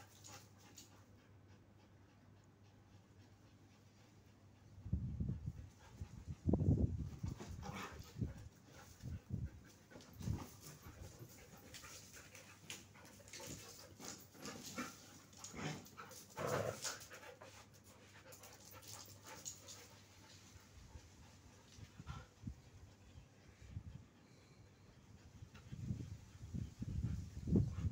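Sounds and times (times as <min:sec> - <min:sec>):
dogs scuffling and vocalizing: 0:00.0 - 0:01.6, 0:03.0 - 0:23.9
dogs panting: 0:00.0 - 0:27.9.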